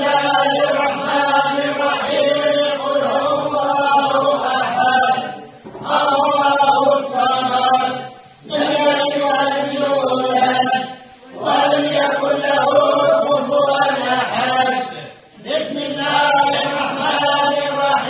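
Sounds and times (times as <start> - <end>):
men chanting in unison: 0.0 - 18.0.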